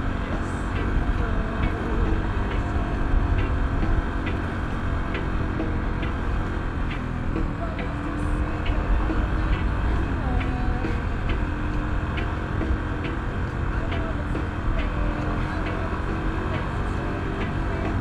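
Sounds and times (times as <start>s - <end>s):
motorcycle engine and wind rumble: 0.0s - 18.0s.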